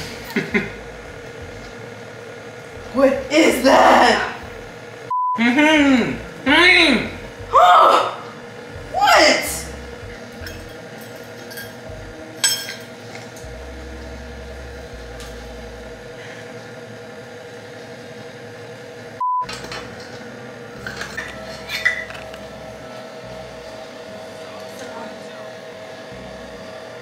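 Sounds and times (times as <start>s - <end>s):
utensils clinking against bowls: 10.3s - 13.4s, 19.5s - 20.2s, 20.8s - 22.4s
short electronic beep: 19.2s - 19.6s.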